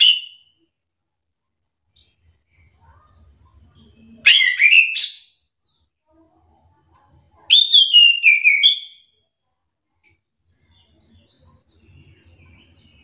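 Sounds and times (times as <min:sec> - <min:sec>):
thrush whistling song: 0:07.5 - 0:09.0.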